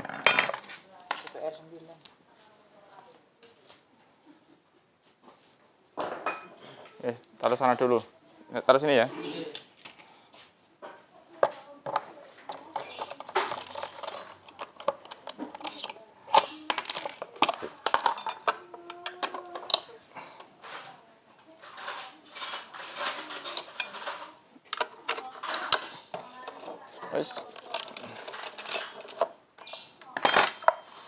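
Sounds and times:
metal tools clinking: 0.0s - 0.8s, 11.9s - 20.0s, 20.6s - 31.0s.

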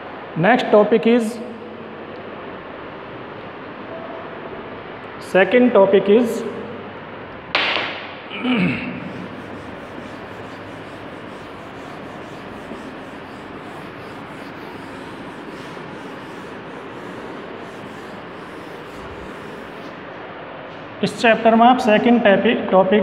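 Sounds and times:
duster scrubbing a blackboard: 8.4s - 20.2s.

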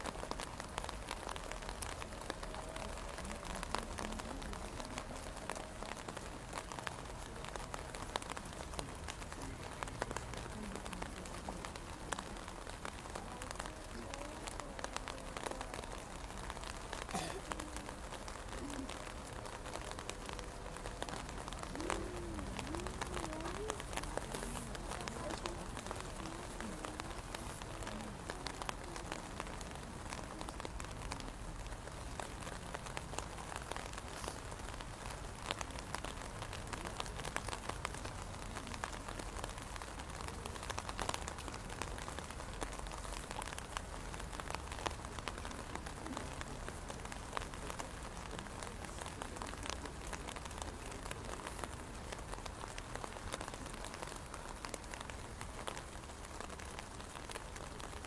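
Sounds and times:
raindrops ticking on umbrella: 0.0s - 58.0s
steady rain: 0.0s - 58.0s.

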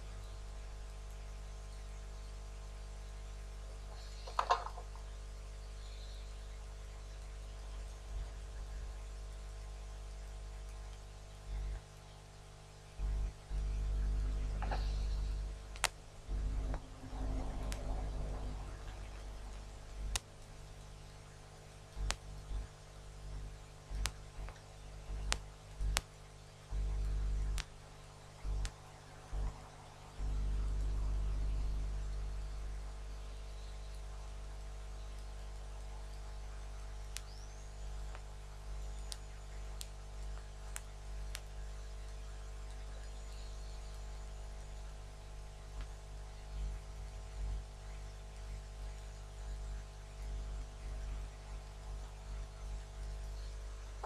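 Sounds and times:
steady electrical hum: 0.0s - 54.0s
low rumble: 12.9s - 34.9s.

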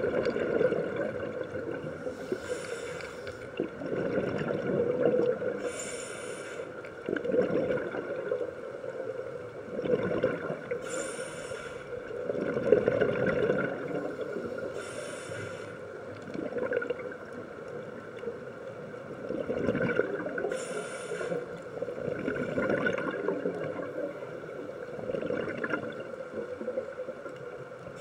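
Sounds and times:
gurgling exhaled bubbles: 0.0s - 2.6s, 3.5s - 5.8s, 7.0s - 8.7s, 9.5s - 10.9s, 12.0s - 14.8s, 16.1s - 18.0s, 19.1s - 20.5s, 21.7s - 27.0s
regulator hiss on inhale: 2.0s - 3.5s, 5.6s - 7.0s, 10.8s - 12.2s, 14.4s - 16.0s, 20.4s - 21.8s.

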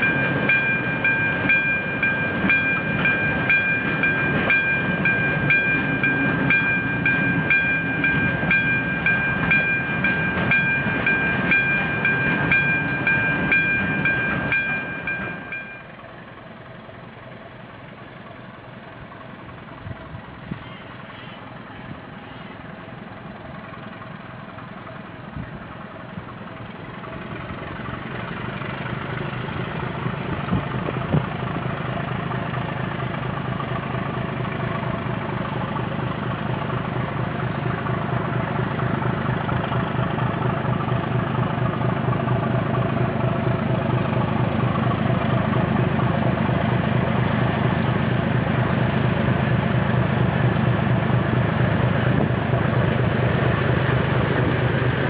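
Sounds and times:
diesel locomotive engine running: 0.0s - 55.0s.

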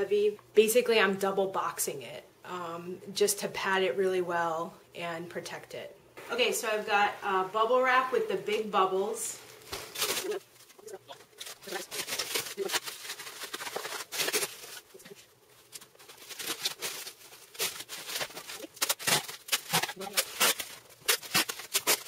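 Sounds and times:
bubble wrap rustling and crinkling: 9.3s - 22.0s.

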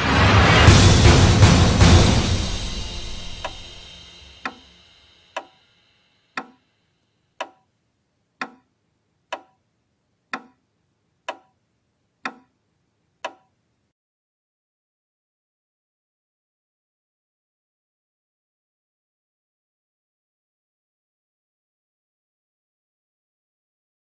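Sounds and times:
music: 0.0s - 6.3s
clock ticking: 3.4s - 3.6s, 4.4s - 4.6s, 5.4s - 5.6s, 6.3s - 6.7s, 7.3s - 7.8s, 8.4s - 9.7s, 10.3s - 12.6s, 13.2s - 13.6s.

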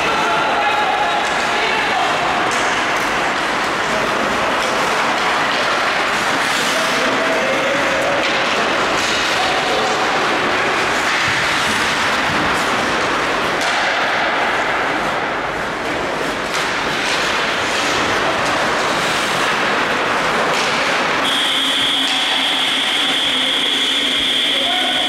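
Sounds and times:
sticks and puck knocking: 8.0s - 14.6s.

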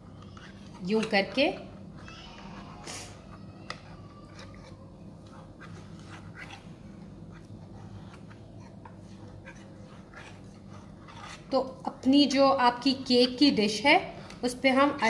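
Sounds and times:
steady low hum: 0.0s - 15.0s
knife scraping metal pan: 9.5s - 11.6s.

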